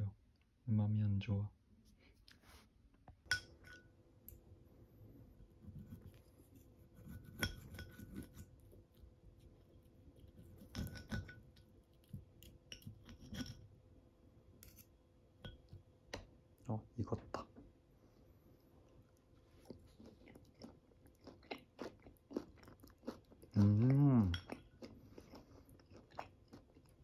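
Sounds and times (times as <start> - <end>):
faint steady hum: 0.0 - 27.0
knife and fork scraping a plate: 5.8 - 8.5, 10.3 - 11.5, 12.7 - 13.6.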